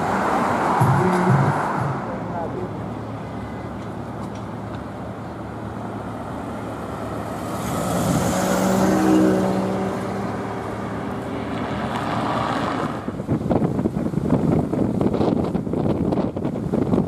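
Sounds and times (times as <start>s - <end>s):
steady road traffic: 0.0s - 17.0s
car passing close by: 6.1s - 13.2s.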